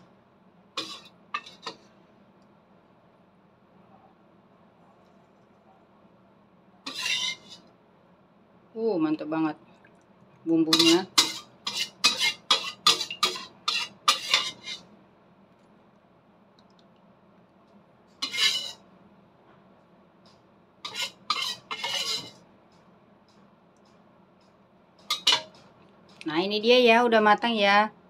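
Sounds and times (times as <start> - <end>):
spoon clinking on plate and pan: 10.7 - 14.8, 25.0 - 25.7.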